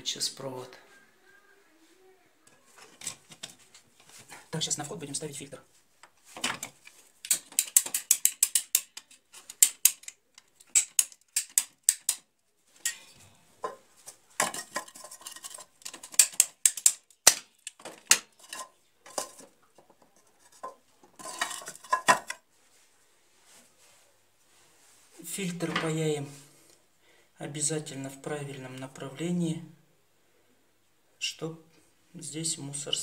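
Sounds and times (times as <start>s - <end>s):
pipe cutter ratchet clicks: 7.2s - 9.0s, 10.7s - 12.2s.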